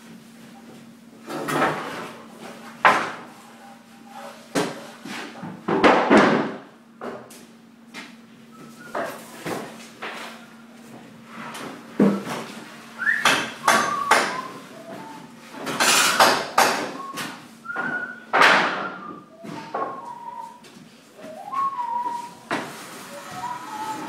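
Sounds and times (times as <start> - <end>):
person whistling: 8.5 - 9.1, 13.0 - 15.4, 16.9 - 22.5, 23.1 - 24.0.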